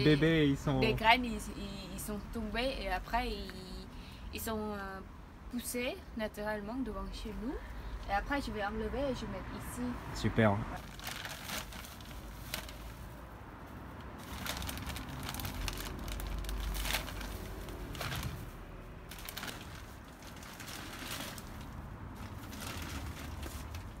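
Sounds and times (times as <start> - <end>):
plastic sack crinkling: 10.8 - 13.2, 14.2 - 24.0.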